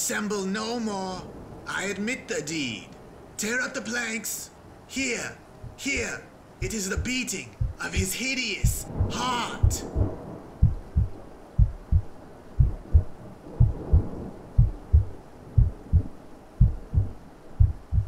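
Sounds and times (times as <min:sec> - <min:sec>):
heartbeat thumps: 0:05.6 - 0:18.0.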